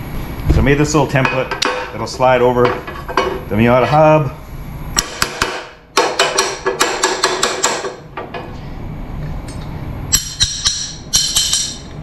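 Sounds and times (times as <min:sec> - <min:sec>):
steel parts clinking: 0:09.5 - 0:12.0.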